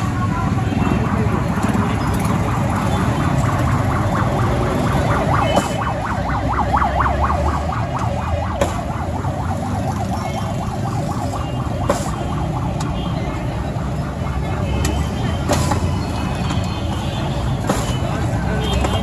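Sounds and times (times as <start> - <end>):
street traffic rumbling: 0.0 - 19.0
siren-style warble: 0.5 - 14.5.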